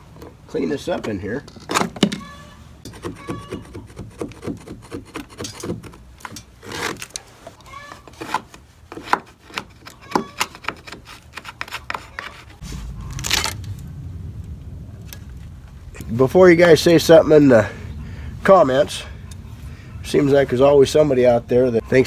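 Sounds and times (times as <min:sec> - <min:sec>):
hand tools scraping wood: 0:02.8 - 0:12.6
low rumble: 0:12.6 - 0:20.0.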